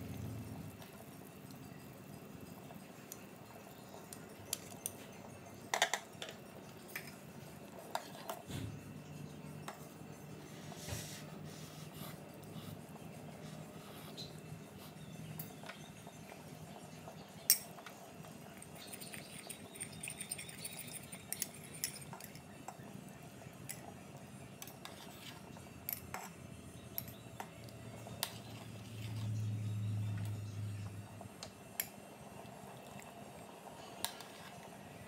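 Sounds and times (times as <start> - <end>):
low hum: 26.5 - 31.4.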